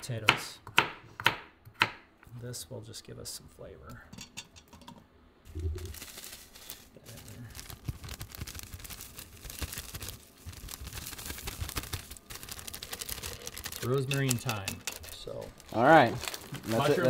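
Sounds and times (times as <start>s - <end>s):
plastic bag crinkling: 5.5s - 17.0s.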